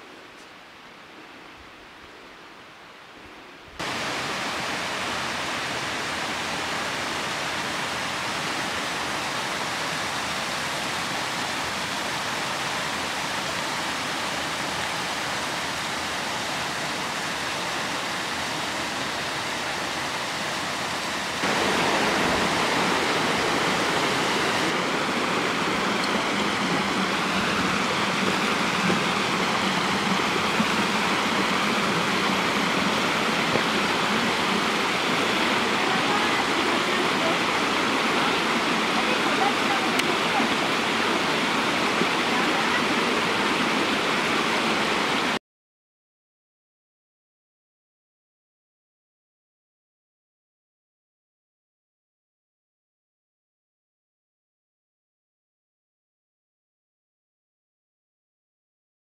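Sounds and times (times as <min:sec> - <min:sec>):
stream rushing over rocks: 0:03.8 - 0:45.4.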